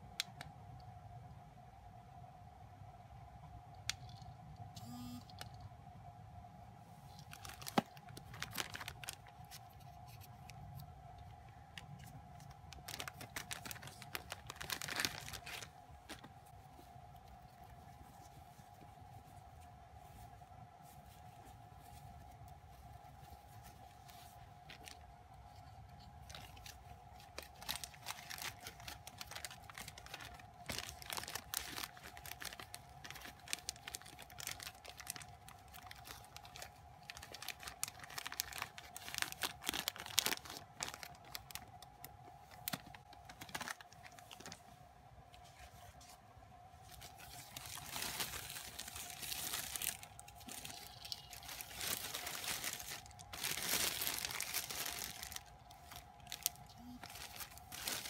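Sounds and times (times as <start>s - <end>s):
plastic bag crinkling: 7.1s - 18.3s, 23.3s - 44.8s, 46.8s - 58.0s.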